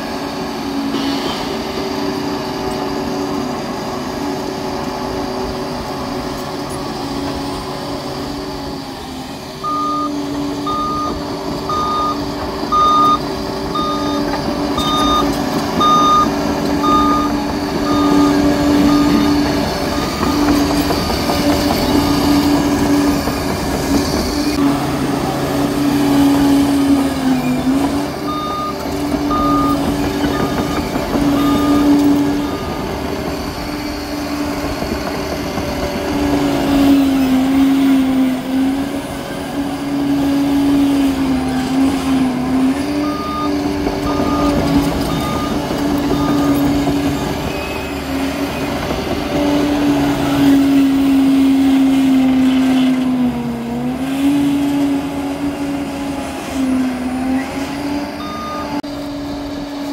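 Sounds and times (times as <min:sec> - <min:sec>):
dozer engine running: 0:00.0 - 0:59.9
reversing alarm beeping: 0:09.6 - 0:23.4, 0:27.4 - 0:34.6, 0:42.9 - 0:48.9, 0:57.4 - 0:58.8.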